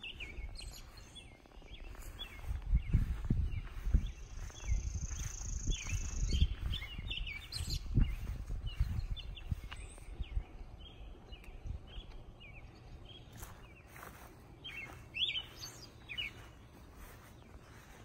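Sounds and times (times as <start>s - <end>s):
songbirds chirping: 0.0s - 18.0s
thumps and rumble on microphone: 1.5s - 10.6s.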